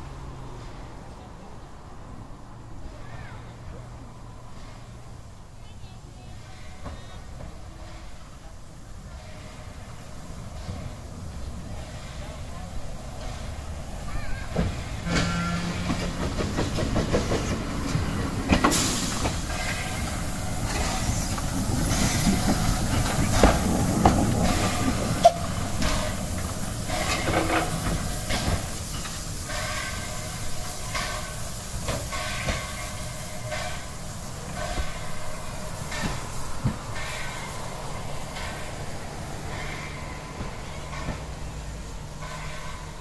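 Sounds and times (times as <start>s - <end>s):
hissing steam: 2.8s - 43.0s
locomotive running gear knocking: 14.3s - 30.1s.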